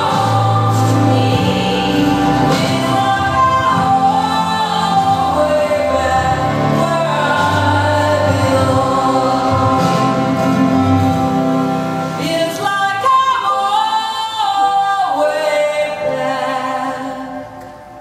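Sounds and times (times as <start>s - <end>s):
instrumental accompaniment: 0.0s - 13.0s
voices singing long notes: 0.0s - 17.8s.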